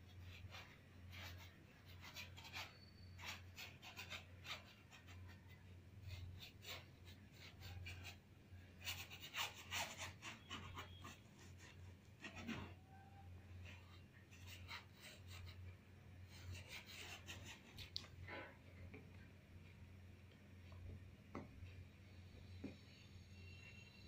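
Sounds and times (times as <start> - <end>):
brush scratching on canvas: 0.0 - 13.0.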